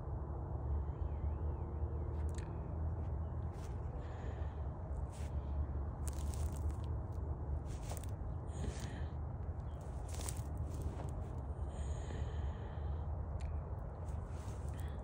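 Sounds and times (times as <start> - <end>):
low rumble: 0.0 - 15.0
rabbit nibbling crunches: 6.0 - 6.9, 7.7 - 9.0, 9.8 - 11.3.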